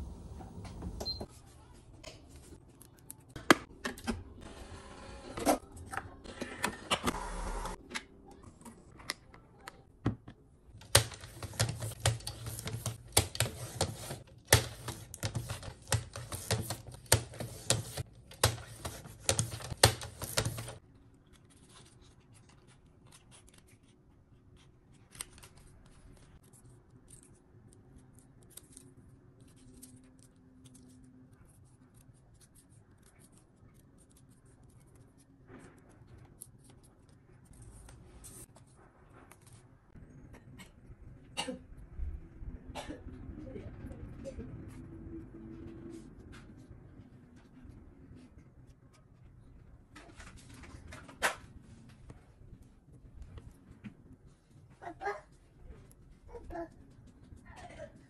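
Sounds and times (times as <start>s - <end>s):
paper handling: 10.7s - 39.8s.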